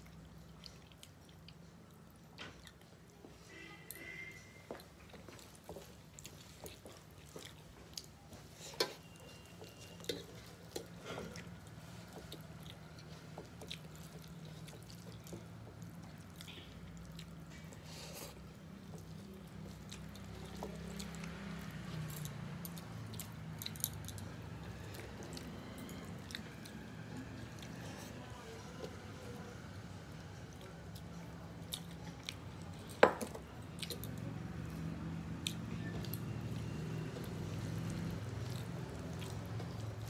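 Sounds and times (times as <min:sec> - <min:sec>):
chewing and wet smacking: 0:00.0 - 0:40.0
fingers mixing food on metal plates: 0:03.0 - 0:29.1, 0:30.4 - 0:40.0.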